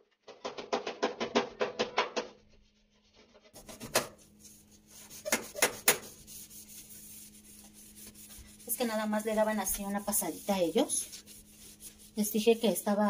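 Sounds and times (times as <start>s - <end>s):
sponge scrubbing metal stove: 2.8s - 13.0s.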